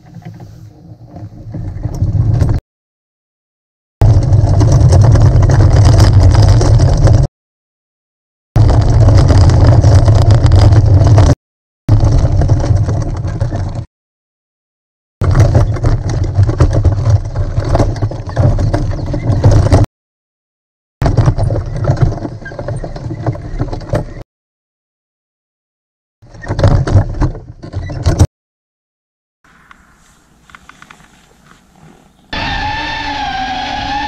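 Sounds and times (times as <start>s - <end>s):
wagon wheels rumbling on gravel: 0.0s - 2.6s, 4.0s - 7.3s, 8.6s - 13.9s, 15.2s - 19.8s, 21.0s - 24.2s.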